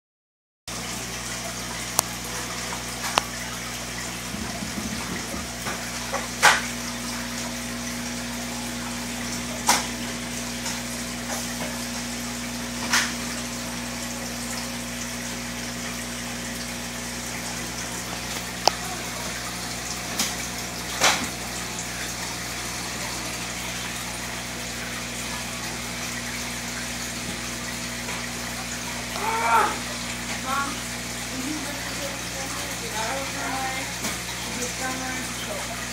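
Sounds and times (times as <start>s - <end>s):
aquarium bubbles bubbling: 0.7s - 35.9s.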